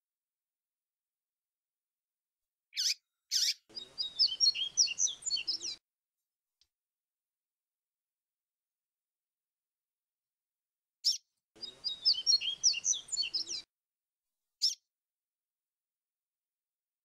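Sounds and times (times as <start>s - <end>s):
bird chirp: 2.7s - 5.8s, 11.0s - 13.7s, 14.6s - 14.8s
bird singing whistled notes: 2.8s - 5.8s, 11.0s - 13.7s.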